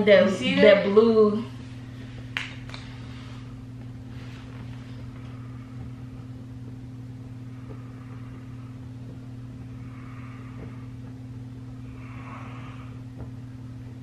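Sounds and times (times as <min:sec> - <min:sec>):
air conditioner humming: 0:00.0 - 0:14.0.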